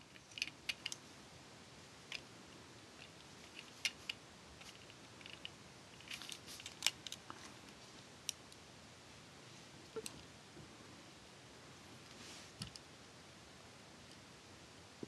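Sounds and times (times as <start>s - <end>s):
plastic toy parts clicking: 0.1s - 1.0s, 3.0s - 7.2s.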